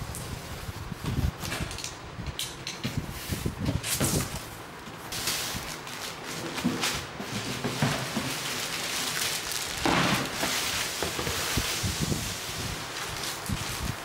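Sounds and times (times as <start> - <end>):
plastic wrapping crinkling: 5.1 - 14.0.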